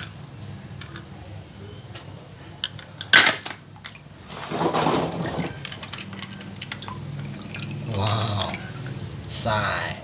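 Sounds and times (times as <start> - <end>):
water sloshing: 3.8 - 9.4.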